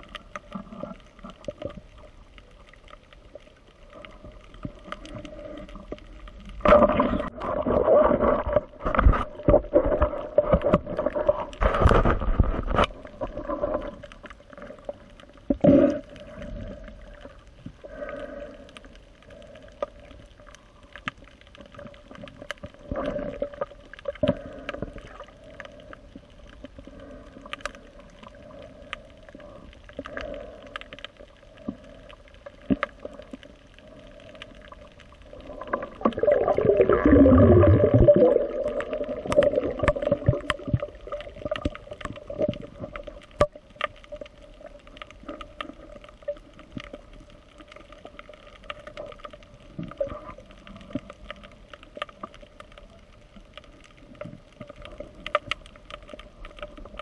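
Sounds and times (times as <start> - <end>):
muffled underwater movement: 0.0 - 57.0
gurgling water rush: 3.9 - 17.2, 35.2 - 47.7.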